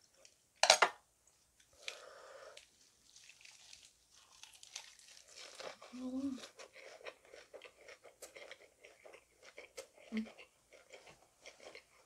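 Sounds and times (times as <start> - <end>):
crisp crunching and chewing: 2.6 - 12.0.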